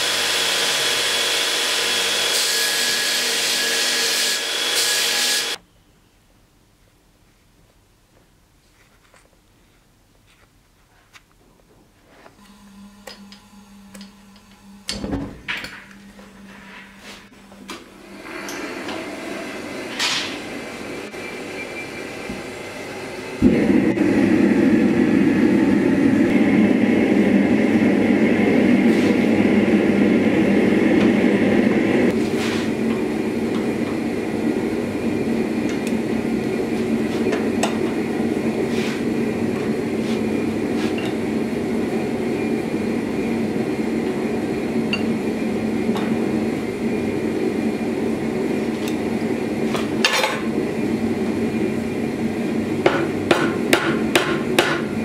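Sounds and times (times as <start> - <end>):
gas forge rushing: 12.4 - 55.0.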